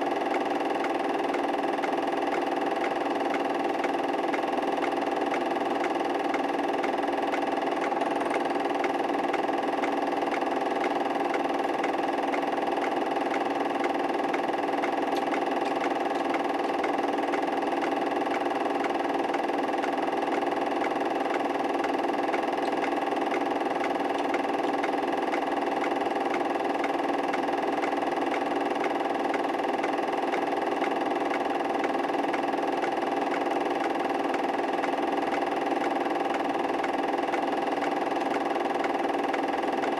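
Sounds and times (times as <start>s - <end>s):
machine hum: 0.0s - 39.9s.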